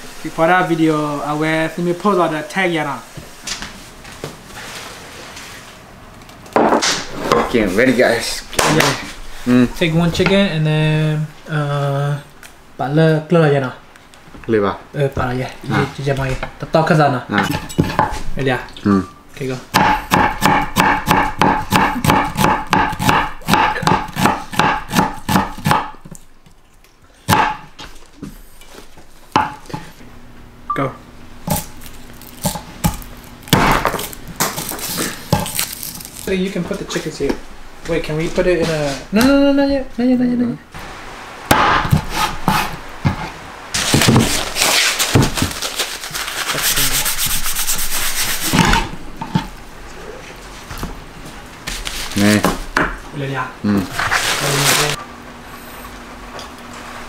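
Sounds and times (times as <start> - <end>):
knife chopping on wooden board: 19.7 - 26.2, 27.3 - 27.7, 29.3 - 29.9, 32.3 - 35.6
paper towel crumpling: 34.0 - 36.6, 43.8 - 48.5, 54.0 - 55.0.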